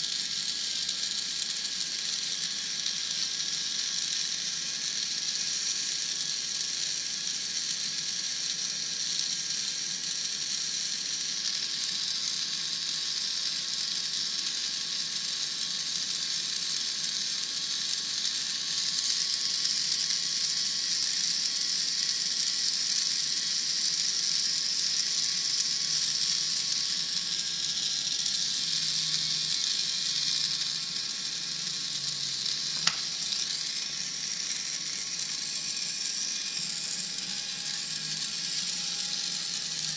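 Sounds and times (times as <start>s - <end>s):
sharp click: 32.6s - 33.4s.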